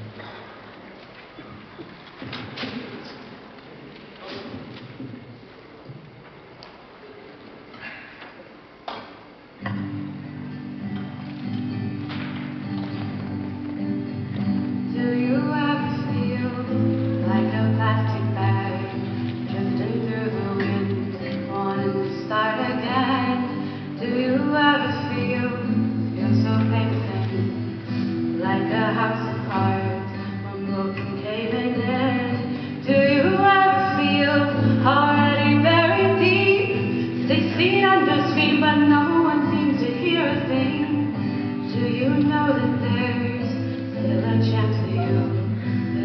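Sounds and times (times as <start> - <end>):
acoustic guitar playing: 9.5 - 46.0
person singing: 14.8 - 46.0.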